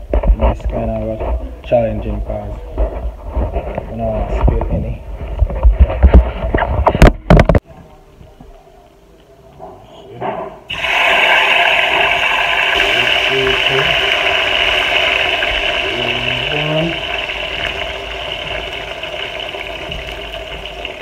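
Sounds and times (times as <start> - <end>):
vegetables sizzling in hot oil: 10.7 - 21.0.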